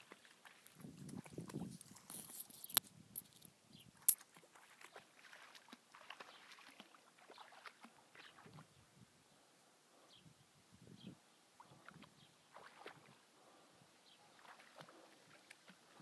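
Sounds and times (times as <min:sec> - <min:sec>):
water sloshing and splashing: 0:00.0 - 0:02.4, 0:04.1 - 0:08.7, 0:11.6 - 0:13.2, 0:14.3 - 0:16.0.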